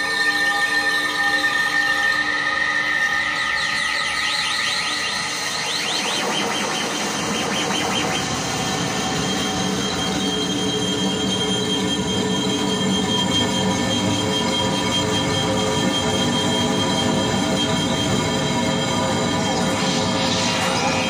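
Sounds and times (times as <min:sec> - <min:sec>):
screeching electronic noise: 0:02.8 - 0:21.0
steady high tones: 0:07.0 - 0:21.0
warbling pitch sweeps: 0:18.7 - 0:21.0.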